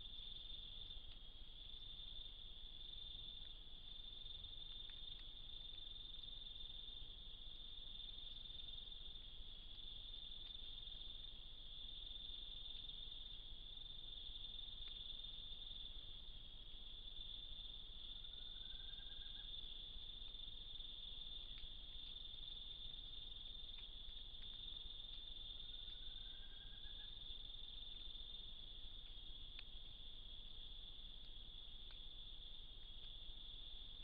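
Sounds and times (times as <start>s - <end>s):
faint ticks: 0.0s - 34.0s
insect chorus shrill trill: 18.1s - 19.5s, 25.9s - 27.3s.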